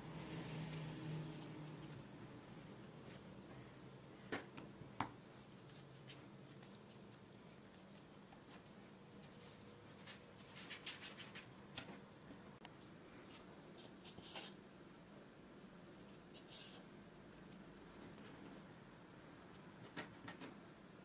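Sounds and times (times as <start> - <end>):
low steady room hum: 0.0 - 21.0
hands brushing and scuffing dough: 0.3 - 2.1, 5.3 - 11.6, 13.1 - 14.6.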